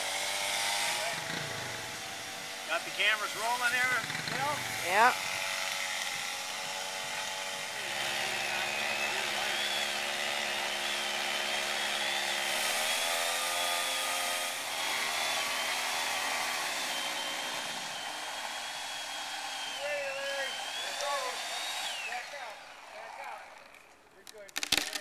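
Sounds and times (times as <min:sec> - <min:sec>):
chainsaw cutting wood: 0:00.0 - 0:25.0.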